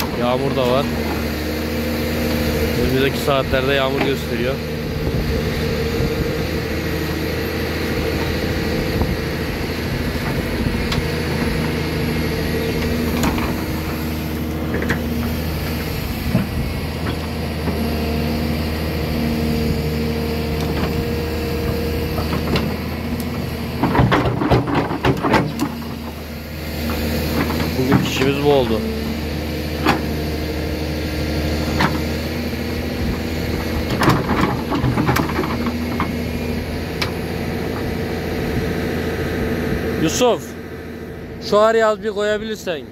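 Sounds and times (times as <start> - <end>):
large engine running: 0.0 - 42.9.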